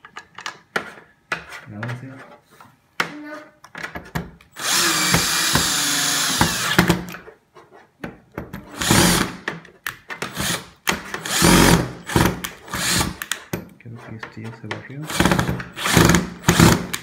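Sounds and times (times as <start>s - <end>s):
power drill driving screws: 4.5s - 7.2s, 8.7s - 9.4s, 10.2s - 13.3s, 15.1s - 17.0s
drill clicks: 4.6s - 7.2s, 10.2s - 13.4s, 15.1s - 17.0s.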